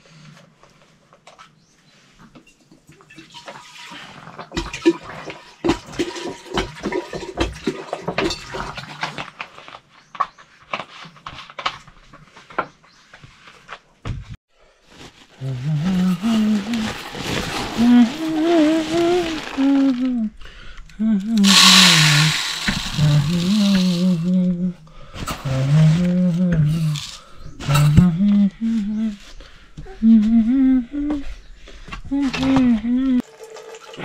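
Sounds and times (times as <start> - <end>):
water pouring into metal pot: 3.1 - 4.0, 21.4 - 24.3, 33.2 - 34.0.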